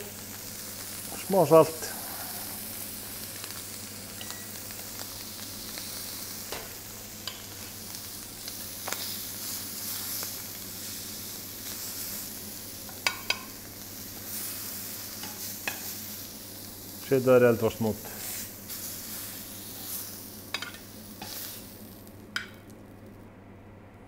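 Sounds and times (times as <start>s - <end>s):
meat sizzling in a frying pan: 0.0s - 22.9s
metal tongs clicking on pan: 12.9s - 13.5s, 20.5s - 21.4s.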